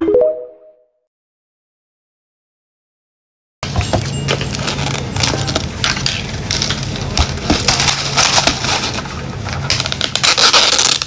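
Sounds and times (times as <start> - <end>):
plastic cup crackling: 4.7 - 11.0.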